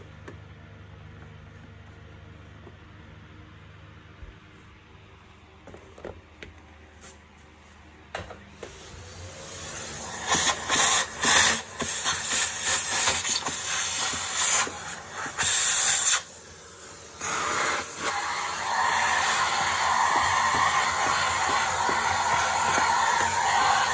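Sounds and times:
vacuum nozzle sucking air: 8.6 - 23.9.

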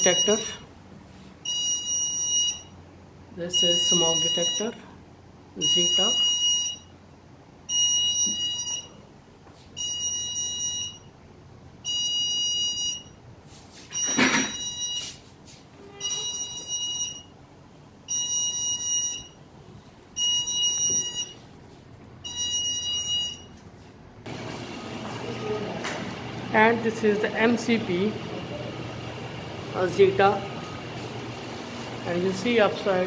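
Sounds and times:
fire alarm beeper pulsed tone: 0.0 - 0.6, 1.4 - 2.8, 3.5 - 4.8, 5.6 - 7.0, 7.7 - 9.0, 9.8 - 11.2, 11.8 - 13.2, 13.9 - 15.2, 16.0 - 17.4, 18.1 - 19.4, 20.2 - 21.4, 22.2 - 23.6.

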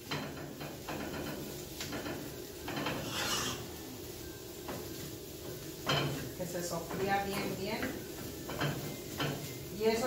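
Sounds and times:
vegetables frying: 0.0 - 10.0
spoon scraping in skillet: 0.1 - 6.4.

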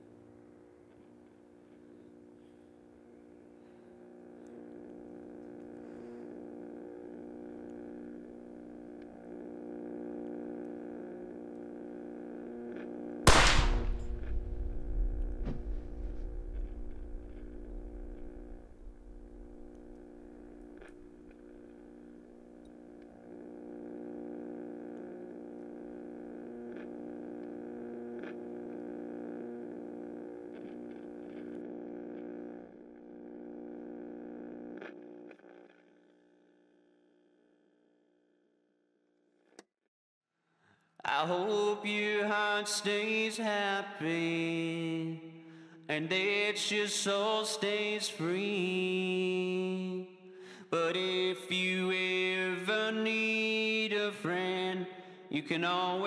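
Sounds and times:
pistol shot: 13.3 - 19.6
droning chord: 13.3 - 28.0.

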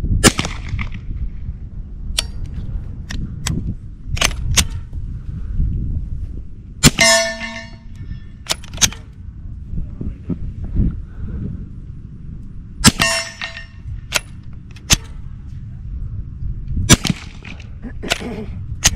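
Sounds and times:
suppressed pistol shots: 0.2 - 1.0, 6.8 - 7.7, 12.8 - 15.2, 16.9 - 18.9
metallic ringing: 6.8 - 8.7, 12.8 - 15.2.

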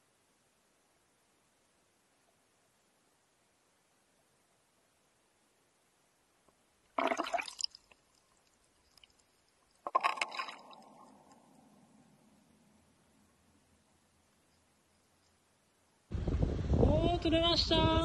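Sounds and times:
water splashing and gurgling: 7.0 - 11.4.

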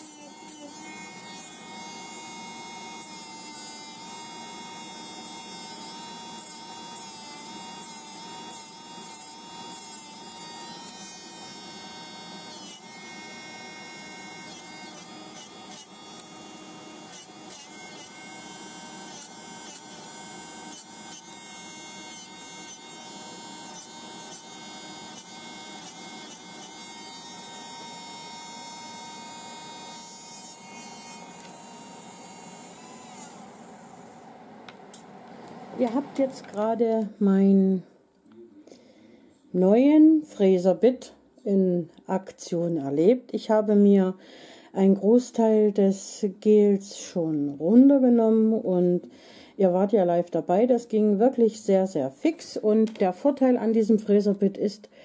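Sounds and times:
electric nail file whining: 0.0 - 36.7.

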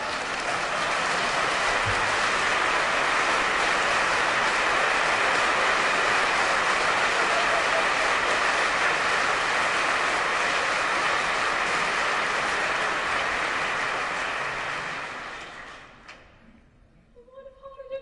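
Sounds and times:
audience applause: 0.0 - 16.1.

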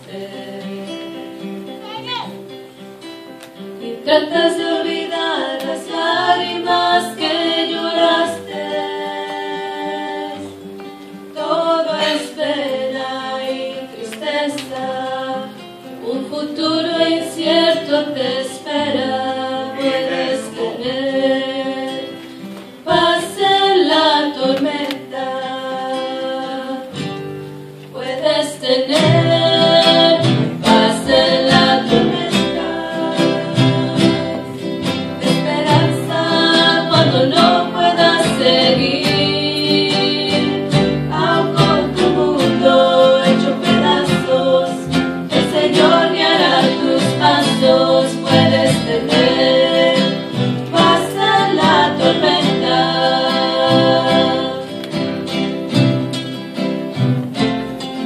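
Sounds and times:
women singing gospel together: 0.0 - 1.6, 3.8 - 27.3, 27.9 - 55.2
instrumental accompaniment: 16.8 - 58.0.

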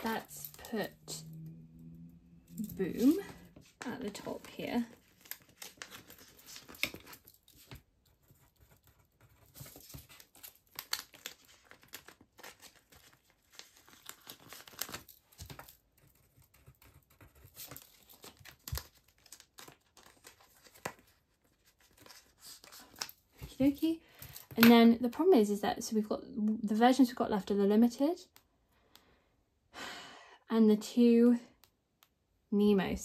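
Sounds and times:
plastic binder page crinkling: 2.6 - 24.7.

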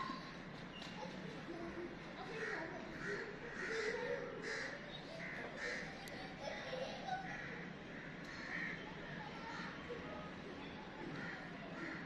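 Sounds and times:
birds cawing: 2.4 - 5.9, 11.2 - 12.0.

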